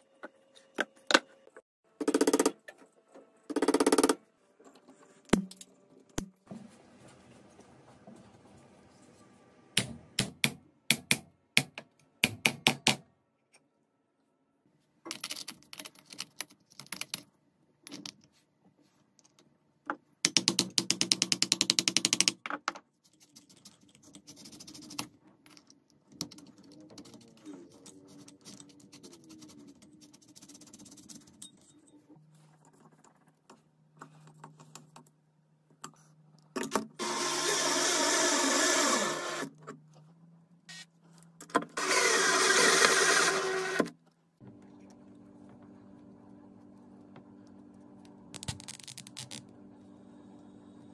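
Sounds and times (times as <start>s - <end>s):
power drill running: 37.0s - 39.5s, 41.8s - 43.9s.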